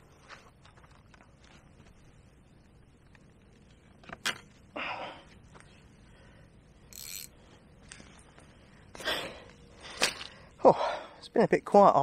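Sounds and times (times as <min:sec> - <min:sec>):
gear rustling and scraping: 0:06.9 - 0:09.0.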